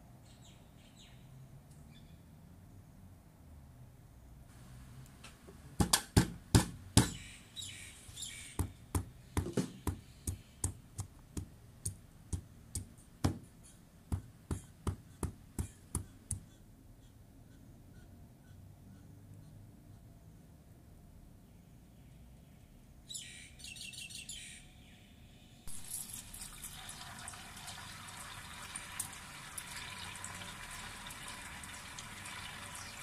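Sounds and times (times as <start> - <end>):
stone pestle pounding ginger: 5.8 - 7.2, 8.6 - 13.5, 14.1 - 16.5.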